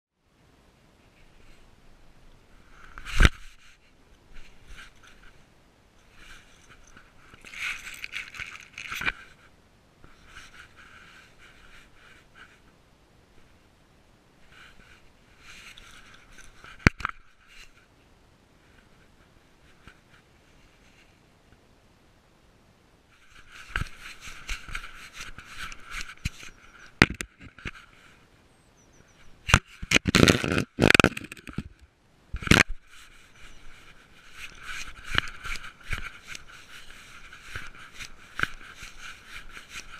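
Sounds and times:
dry leaves rustling against camera: 0:02.7 - 0:12.6, 0:23.1 - 0:28.2, 0:32.4 - 0:39.9.

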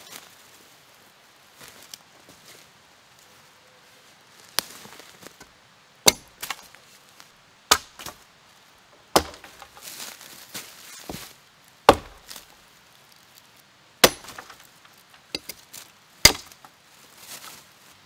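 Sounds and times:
axe chopping into tree trunk: 0:06.0 - 0:06.6, 0:07.7 - 0:08.2, 0:09.0 - 0:09.8, 0:11.9 - 0:12.5, 0:14.0 - 0:14.7, 0:15.3 - 0:15.6, 0:16.2 - 0:16.7.

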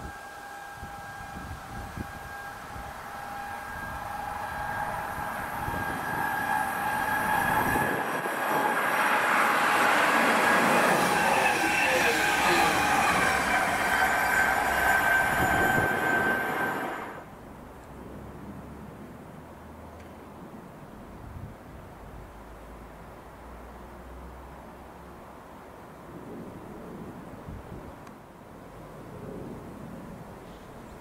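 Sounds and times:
high whine: 0:00.0 - 0:17.4
train wheel and rail noise: 0:00.0 - 0:18.0.

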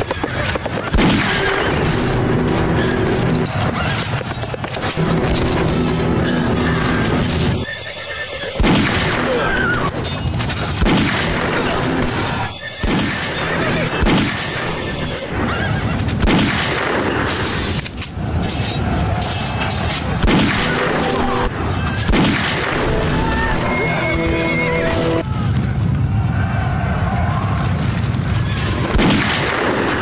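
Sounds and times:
horses neighing: 0:00.0 - 0:10.1, 0:11.0 - 0:16.2, 0:22.7 - 0:25.2
gunshots: 0:00.0 - 0:30.0.

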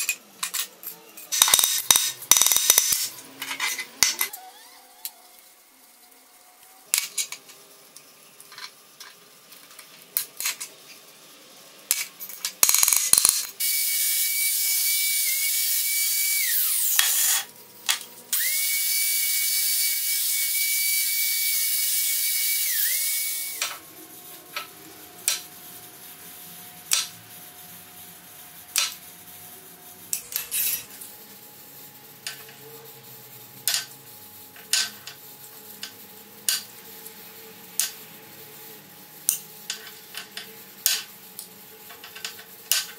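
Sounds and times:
angle grinder grinding metal: 0:13.0 - 0:17.5, 0:18.4 - 0:25.5, 0:30.1 - 0:31.1.

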